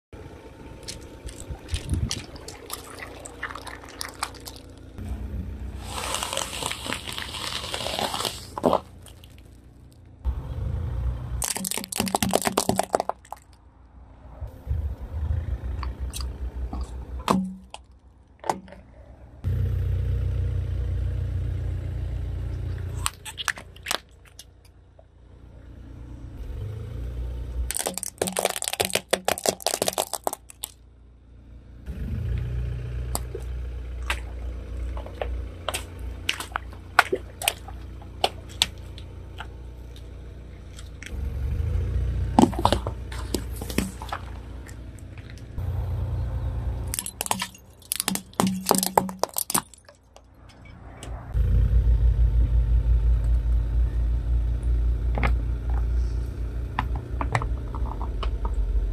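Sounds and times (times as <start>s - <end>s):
low car rumble: 0.1s - 58.9s
plastic cracking and crunching: 6.0s - 9.5s, 11.4s - 13.6s, 27.7s - 30.8s, 46.9s - 50.0s.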